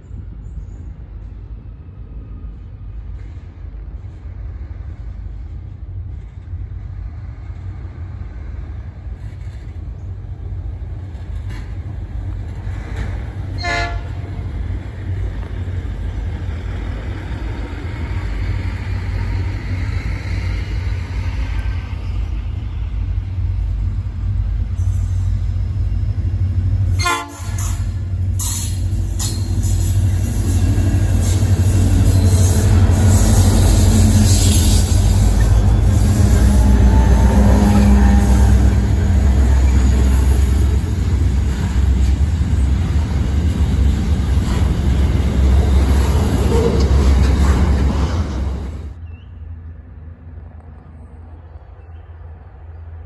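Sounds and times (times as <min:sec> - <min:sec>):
diesel locomotive rumble: 0:00.0 - 0:53.0
electric railcar passing: 0:00.0 - 0:53.0
train horn toots: 0:13.5 - 0:14.4, 0:26.9 - 0:28.0, 0:31.2 - 0:40.2.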